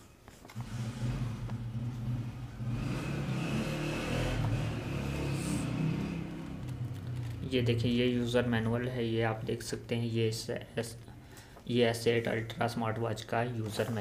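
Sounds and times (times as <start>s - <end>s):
engine humming: 0.6s - 7.8s.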